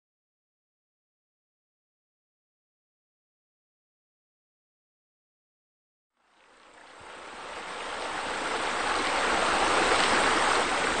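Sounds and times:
waterfall splashing into pool: 0:06.6 - 0:11.0.

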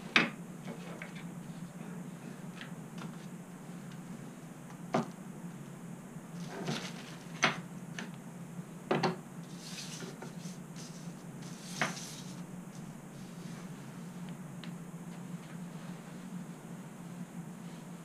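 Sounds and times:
low steady hum: 0:00.0 - 0:18.0
sheet sliding across counter: 0:09.5 - 0:12.4.

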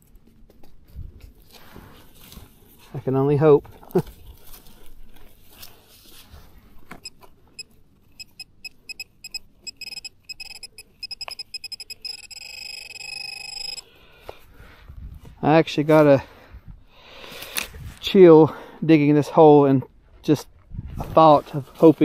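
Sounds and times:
metal detector pinpointer beeping: 0:07.0 - 0:13.8.

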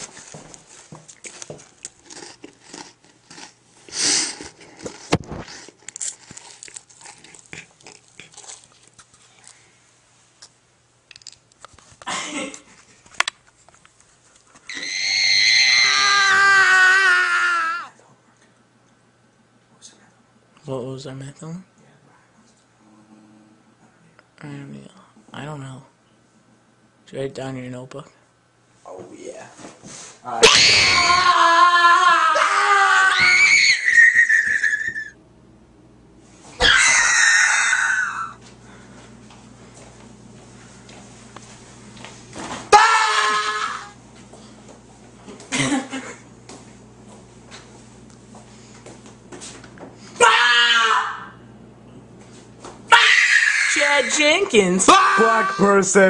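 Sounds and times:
young man screaming: 0:14.7 - 0:18.0, 0:30.3 - 0:35.2, 0:36.6 - 0:38.4, 0:42.7 - 0:44.0, 0:50.2 - 0:51.4, 0:52.9 - 0:54.2, 0:54.8 - 0:56.0.

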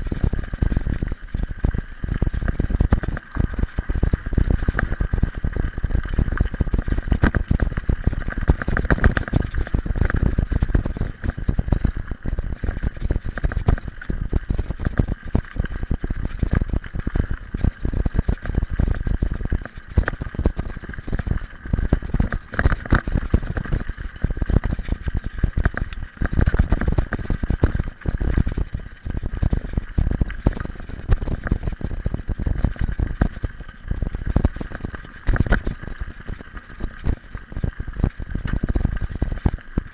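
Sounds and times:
bike rattling over bumps: 0:00.0 - 0:39.9.

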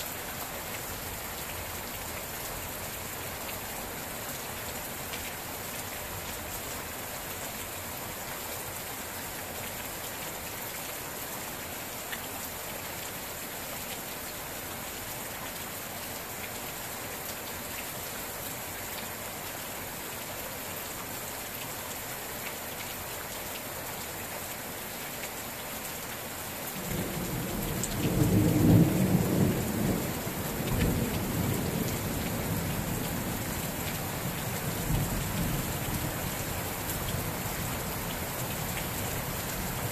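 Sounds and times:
rain falling: 0:00.0 - 0:39.9
rumble of thunder: 0:26.9 - 0:32.7.

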